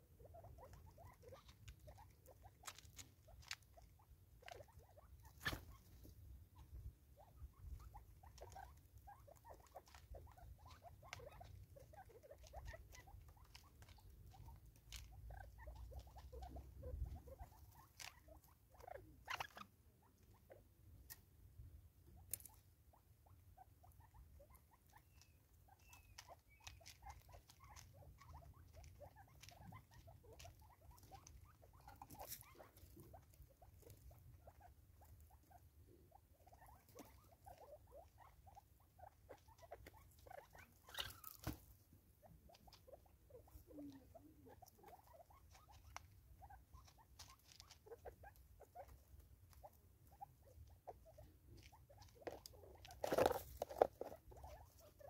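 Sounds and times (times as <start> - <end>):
birds pecking on wood: 39.2 - 41.7.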